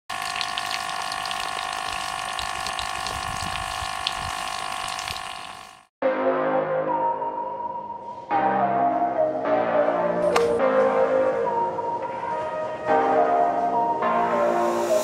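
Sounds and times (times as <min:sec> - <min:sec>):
water spurting hiss: 0:00.1 - 0:05.8
small motor whining: 0:00.1 - 0:05.9
music: 0:06.0 - 0:15.0.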